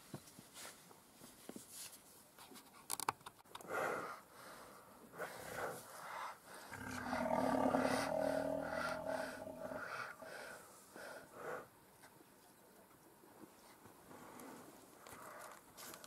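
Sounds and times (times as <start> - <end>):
rhino wheezing snort: 6.6 - 10.6.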